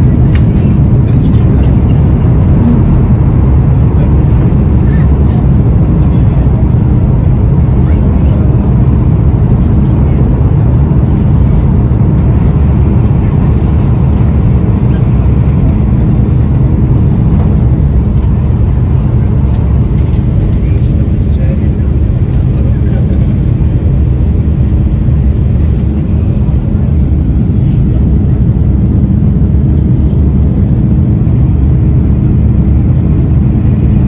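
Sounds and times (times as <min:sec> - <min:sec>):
aircraft cabin engine roar: 0:00.0 - 0:34.0
rushing air: 0:00.8 - 0:04.8.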